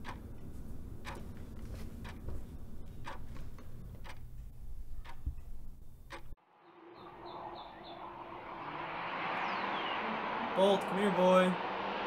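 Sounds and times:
clock ticking: 0.0 - 6.4.

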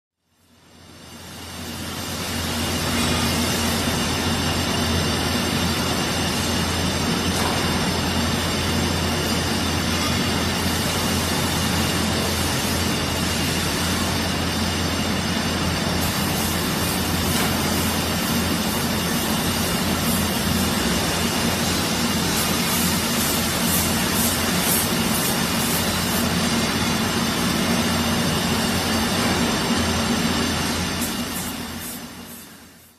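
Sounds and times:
machinery noise: 2.4 - 32.3.

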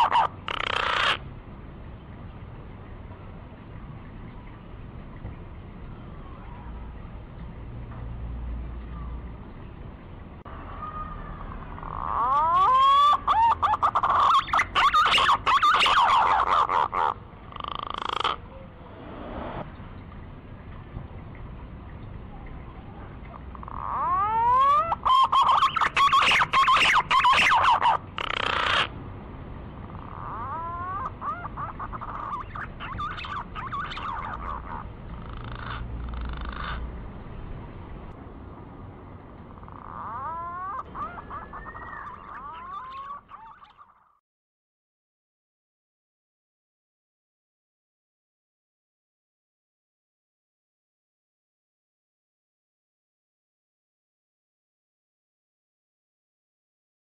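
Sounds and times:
wavering whistled bird call: 12.0 - 16.7, 23.8 - 28.9, 30.1 - 34.7, 39.8 - 44.0
whistled bird call: 40.7 - 44.0.

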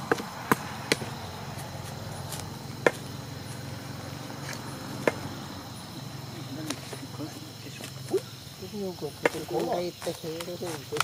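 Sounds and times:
digging tool striking ground: 0.0 - 3.1.

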